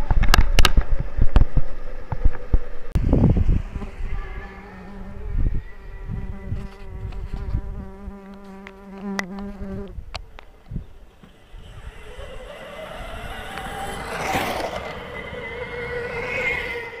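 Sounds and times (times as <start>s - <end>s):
wasp buzzing: 3.7s - 10.0s.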